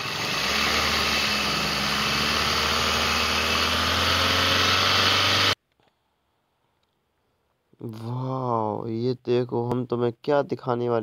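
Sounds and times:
small engine humming: 0.0s - 5.6s.

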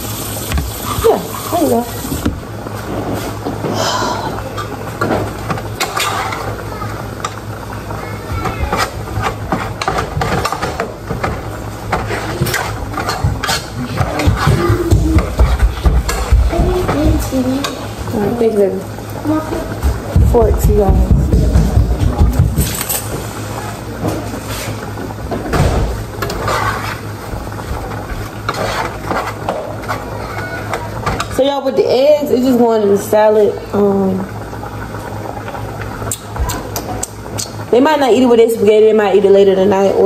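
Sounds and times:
steady low hum: 0.0s - 30.2s
kitchen knocks and clatter: 8.3s - 17.8s, 19.6s - 23.2s, 25.2s - 26.8s.

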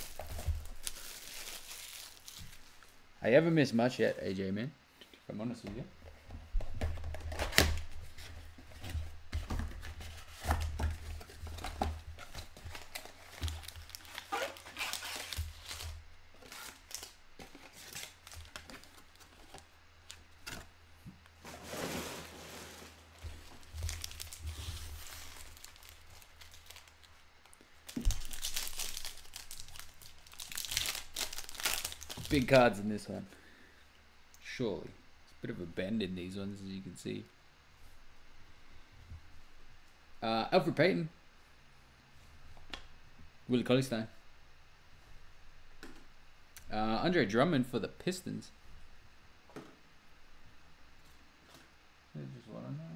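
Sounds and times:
foil wrappers tearing and crinkling: 0.0s - 3.0s, 10.1s - 20.2s, 21.6s - 32.8s.

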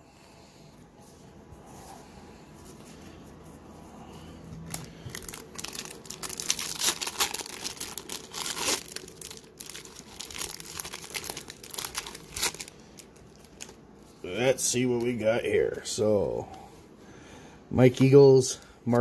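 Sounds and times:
foil wrapper crinkling and tearing: 4.6s - 13.8s.

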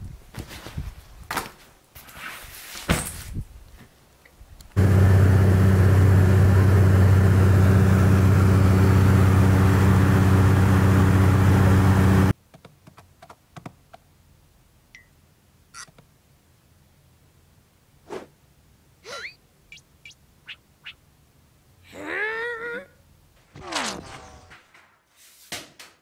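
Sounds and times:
aircraft cabin drone: 4.8s - 12.3s.

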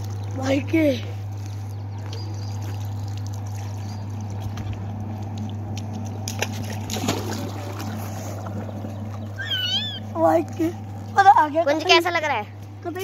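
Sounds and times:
filter pump humming: 0.0s - 13.0s
pool water splashing: 2.5s - 10.9s.

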